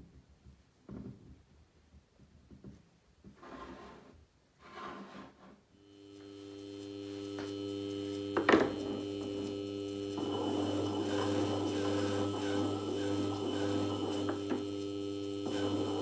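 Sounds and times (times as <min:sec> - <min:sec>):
lapping machine motor humming: 0:05.8 - 0:16.0.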